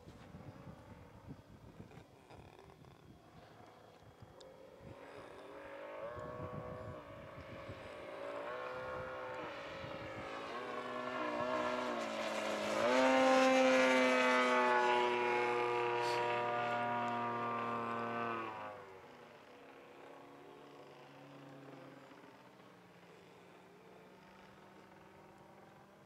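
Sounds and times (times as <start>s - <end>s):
model plane engine in flight: 0.0s - 26.0s.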